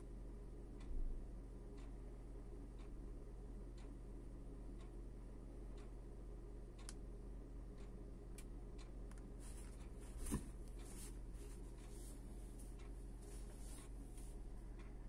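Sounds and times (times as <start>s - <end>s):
low steady hum: 0.0s - 15.0s
fabric rustling: 9.4s - 14.3s.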